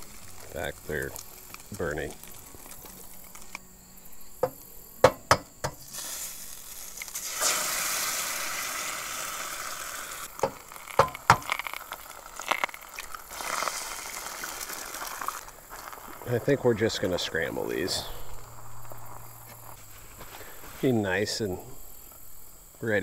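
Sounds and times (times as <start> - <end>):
egg sizzling in hot grease: 0.0 - 3.6, 4.4 - 20.9
eggshell cracking taps: 10.3 - 13.1.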